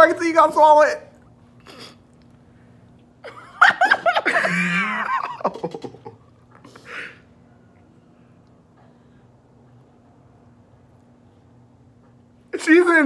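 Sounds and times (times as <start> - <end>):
person laughing: 3.2 - 6.3.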